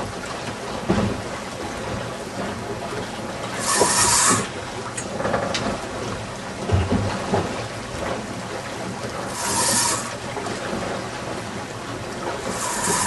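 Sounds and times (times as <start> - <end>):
river water washing: 2.8 - 5.1, 5.7 - 13.0.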